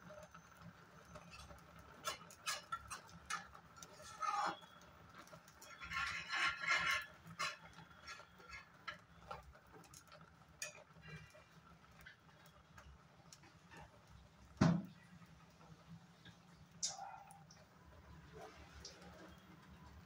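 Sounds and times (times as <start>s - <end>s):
metal spoon scraping steel pan: 1.1s - 9.4s.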